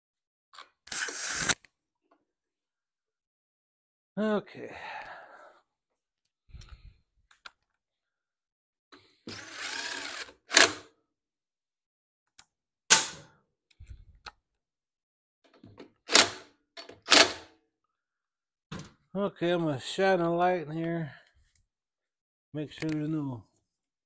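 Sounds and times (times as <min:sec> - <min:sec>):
cordless drill bursts: 0:09.3 - 0:10.9.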